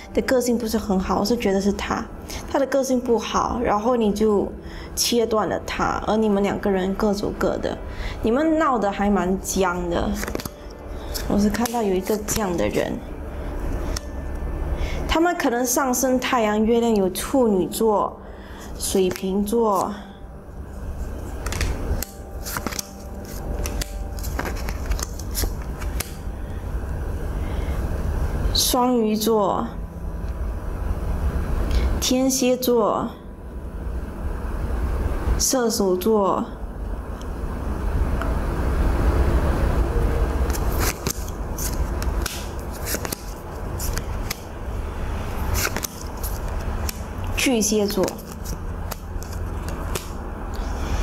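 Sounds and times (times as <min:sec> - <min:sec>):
steady low rumble: 0:00.0 - 0:51.0
playing cards clicking on table: 0:10.1 - 0:12.4, 0:21.4 - 0:26.2, 0:40.5 - 0:44.4, 0:45.5 - 0:47.0, 0:47.9 - 0:50.2.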